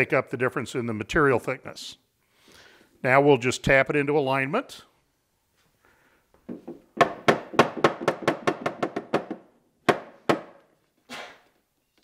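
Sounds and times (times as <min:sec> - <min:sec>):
taps on plywood box: 0:06.5 - 0:10.6.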